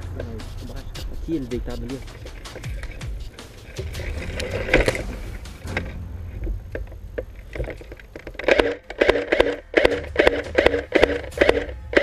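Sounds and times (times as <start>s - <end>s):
footsteps through dry grass: 0.0s - 6.0s
crackling stems: 0.0s - 12.0s.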